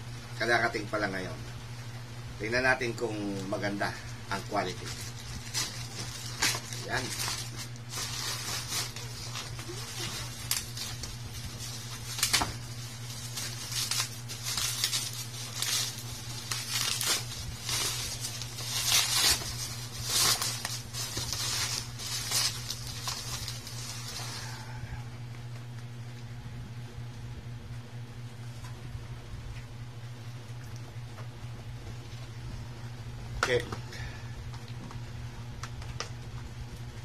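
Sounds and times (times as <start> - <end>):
low hum: 1.3 - 37.0
plastic packaging crinkling: 4.4 - 24.7
pouch tearing open: 4.9 - 24.3.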